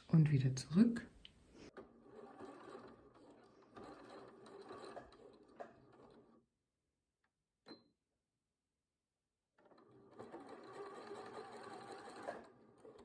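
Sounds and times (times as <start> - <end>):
electric sewing machine running: 1.8 - 6.4, 9.6 - 13.0.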